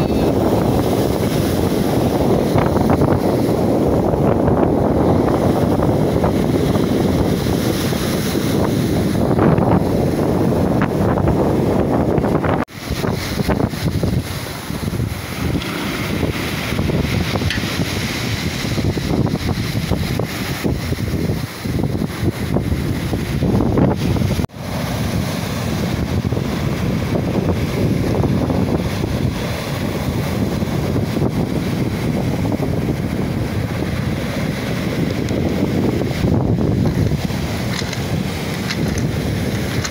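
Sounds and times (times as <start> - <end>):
wind buffeting microphone: 0.0 - 39.9
surf breaking on pebble beach: 12.7 - 39.9.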